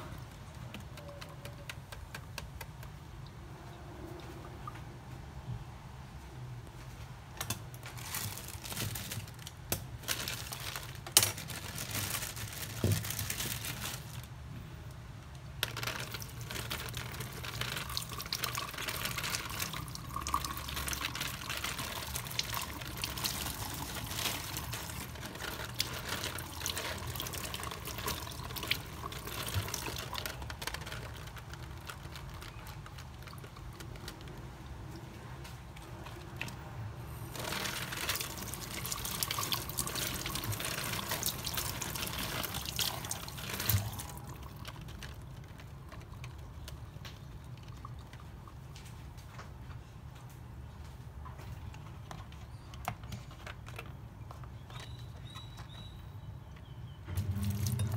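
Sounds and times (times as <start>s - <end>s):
water splashing on vegetables: 15.6s - 35.0s, 37.2s - 48.7s, 57.2s - 57.9s
kitchen tap running: 17.4s - 30.5s, 37.4s - 44.6s, 57.2s - 57.9s.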